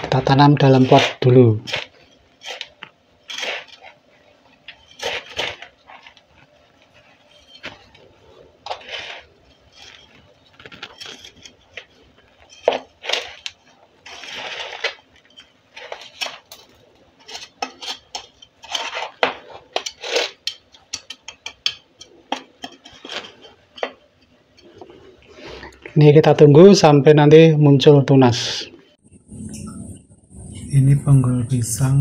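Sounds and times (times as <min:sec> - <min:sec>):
metal trowel scraping soil: 0:00.4 - 0:04.0, 0:04.6 - 0:21.4, 0:22.6 - 0:23.9.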